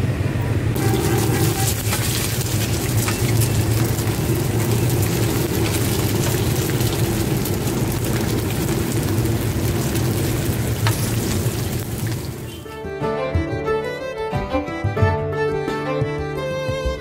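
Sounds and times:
oil sizzling and crackling in a pan: 0.8 - 12.6.

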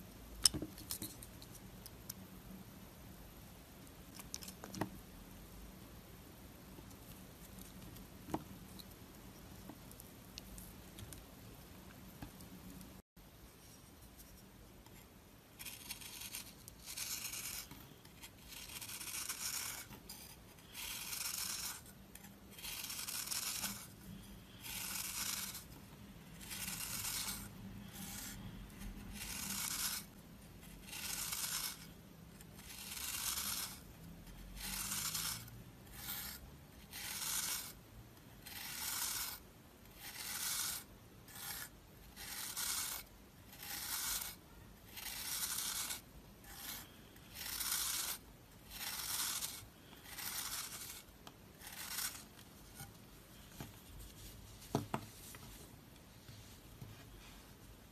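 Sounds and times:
knife scraping soap: 13.8 - 25.8, 26.4 - 37.8, 38.4 - 53.0.

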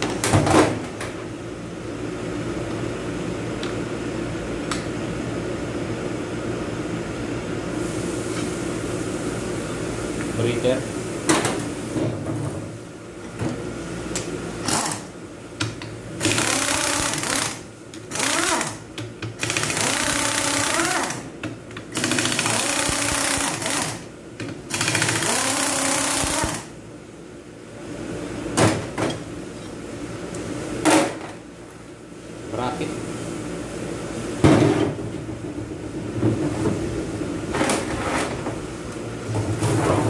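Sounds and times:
pneumatic impact wrench bursts: 14.6 - 15.1, 16.2 - 18.8, 19.4 - 21.2, 21.9 - 24.0, 24.7 - 26.7.

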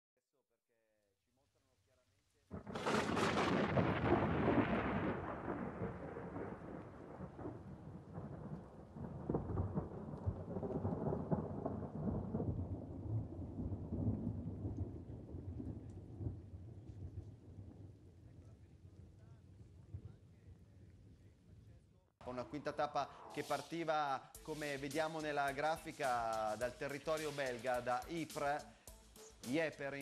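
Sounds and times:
thunderclap rumbling: 2.5 - 21.1.

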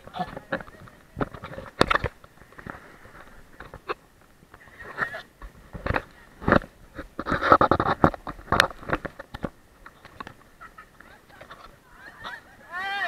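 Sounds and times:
laughter: 10.5 - 13.0
shrill voices: 11.1 - 13.0.

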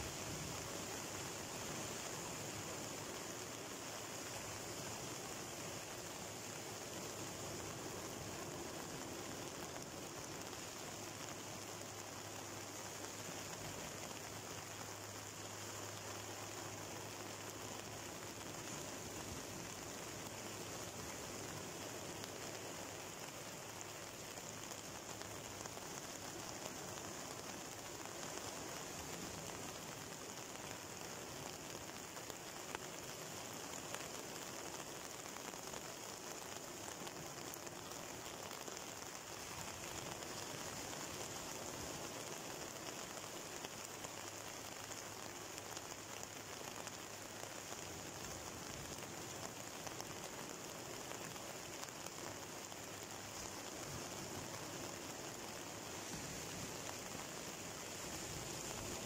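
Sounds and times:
rain falling: 0.0 - 59.0
surf washing onto shore: 17.4 - 59.0.

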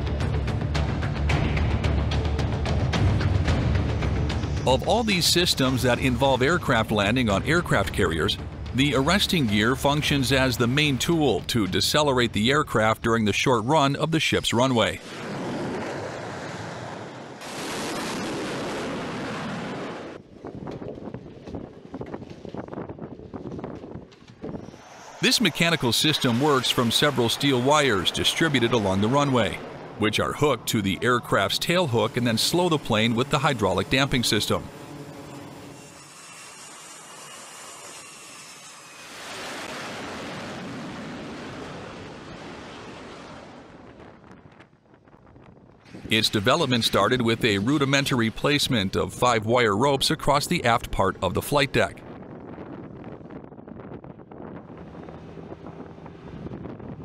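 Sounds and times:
jet engines rushing: 4.0 - 20.2, 24.2 - 36.3, 45.9 - 52.1
rushing wind: 14.4 - 50.0, 50.6 - 57.0.

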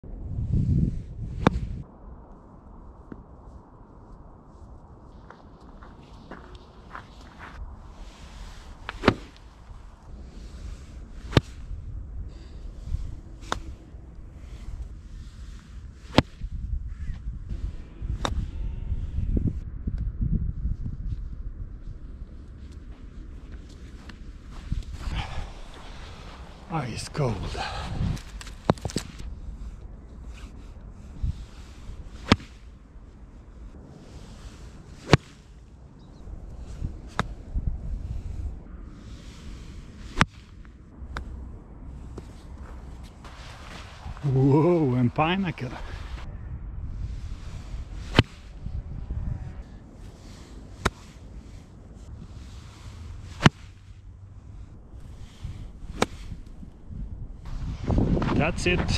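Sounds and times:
golf club swing swish: 7.4 - 9.8, 10.4 - 11.7, 13.4 - 13.8, 14.4 - 16.5, 31.2 - 32.8, 34.0 - 35.6, 39.1 - 41.4, 42.0 - 44.8, 47.1 - 48.6, 50.0 - 51.7, 52.3 - 54.1, 55.0 - 56.8
golf iron striking ball: 8.9 - 9.4, 55.9 - 56.6.

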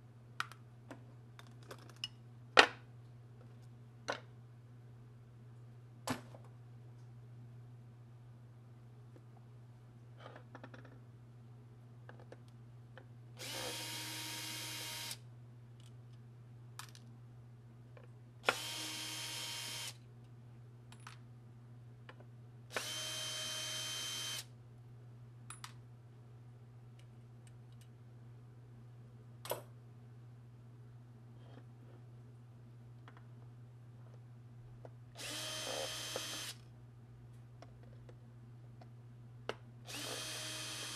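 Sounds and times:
drill motor whining: 13.4 - 15.2, 18.5 - 20.0, 22.7 - 24.4, 35.2 - 36.6, 39.9 - 40.9.

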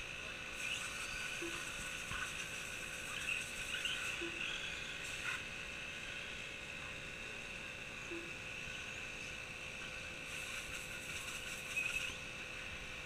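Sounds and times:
rc truck motors whining: 0.0 - 5.4.

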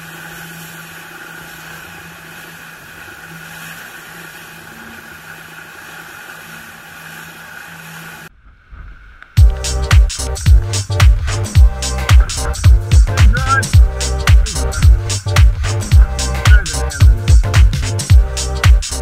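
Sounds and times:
water rushing along boat hull: 0.0 - 19.0
steady low hum: 8.1 - 18.6.

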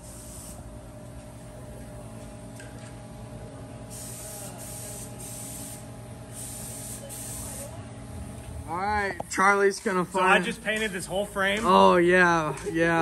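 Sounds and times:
paint spray gun hissing: 0.0 - 0.7, 3.9 - 7.7
steady hum: 0.0 - 13.0.

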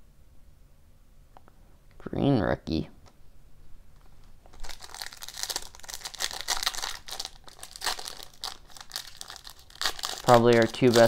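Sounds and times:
foil wrapper crinkling and tearing: 4.5 - 11.0.

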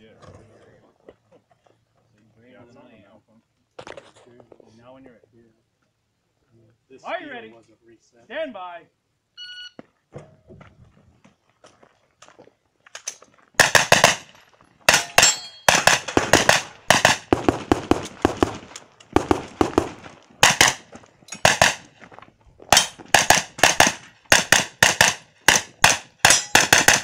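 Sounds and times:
carbine firing rapid shots: 13.6 - 14.3, 14.9 - 21.9, 22.7 - 27.0.

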